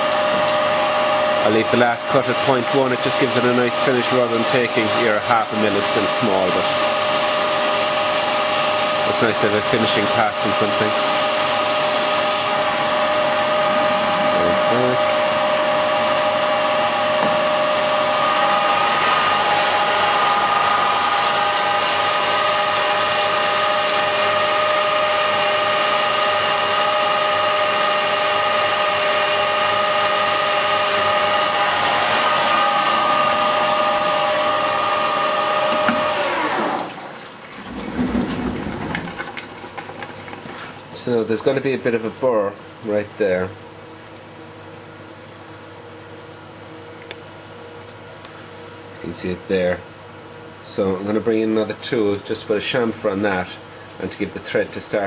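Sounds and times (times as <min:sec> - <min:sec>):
lathe spindle whine: 0:00.0 - 0:37.2
coolant spraying hiss: 0:01.4 - 0:15.4.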